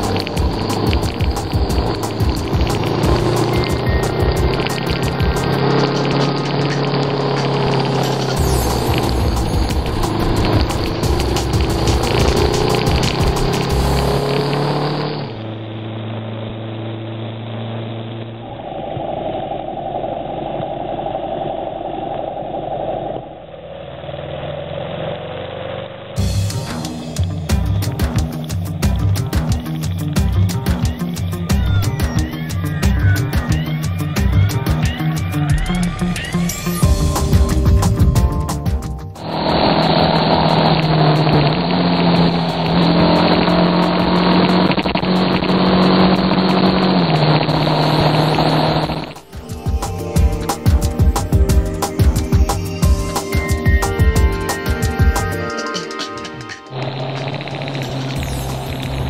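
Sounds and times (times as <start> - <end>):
music with a beat: 0.0 - 14.2, 26.2 - 39.3, 49.1 - 56.8
motorcycle engine running: 0.0 - 19.2, 23.5 - 55.8, 56.4 - 59.0.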